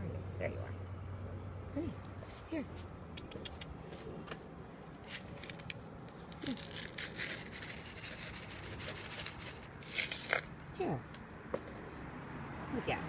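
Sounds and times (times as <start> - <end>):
rustling and scraping: 1.8 - 2.9, 3.9 - 10.7.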